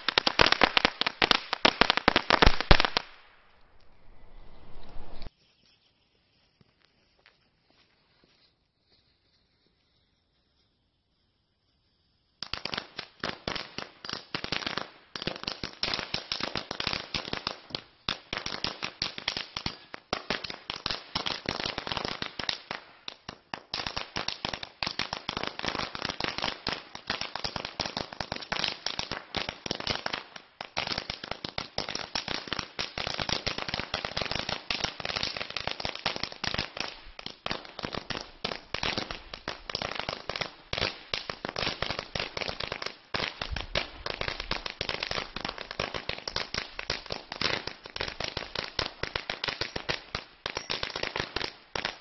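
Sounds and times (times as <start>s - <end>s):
firecracker chain going off: 49.6s - 49.9s, 50.5s - 51.1s.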